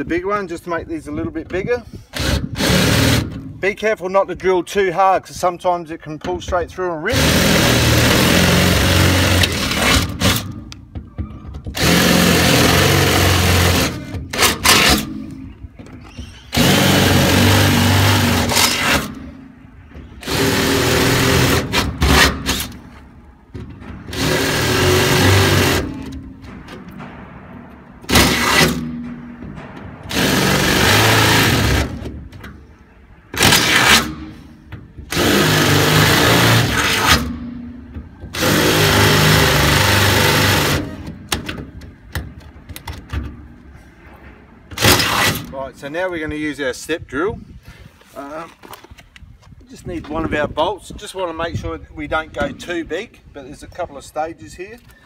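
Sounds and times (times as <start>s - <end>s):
power drill drilling metal: 2.2s - 3.3s, 7.1s - 10.4s, 11.8s - 15.1s, 16.5s - 19.2s, 20.2s - 22.7s, 24.1s - 26.2s, 30.1s - 32.1s, 35.1s - 37.4s, 38.3s - 41.1s.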